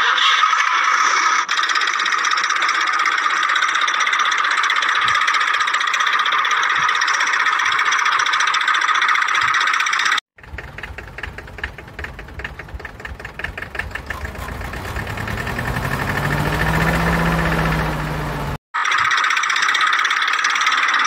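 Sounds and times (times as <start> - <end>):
diesel tractor engine knocking: 10.4 - 18.6.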